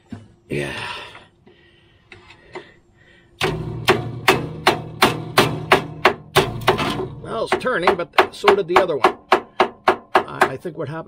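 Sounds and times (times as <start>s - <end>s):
sharp metallic hits: 3.4s - 10.6s.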